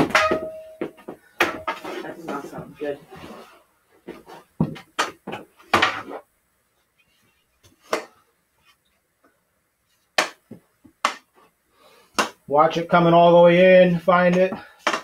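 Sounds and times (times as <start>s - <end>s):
hockey stick hitting ball: 0.0s - 2.0s, 4.6s - 6.2s, 7.8s - 8.2s, 10.2s - 11.4s, 12.2s - 12.4s, 14.3s - 15.0s.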